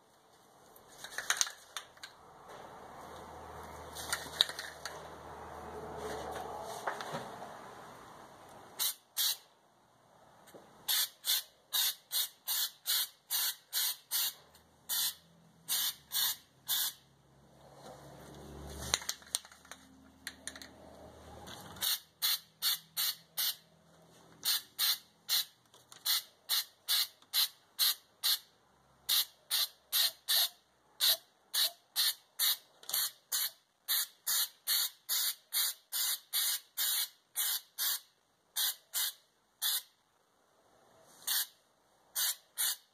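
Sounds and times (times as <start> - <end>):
aerosol can spraying bursts: 8.8 - 9.4, 10.9 - 17.0, 29.1 - 38.0, 38.6 - 39.9, 41.2 - 41.6, 42.2 - 42.9.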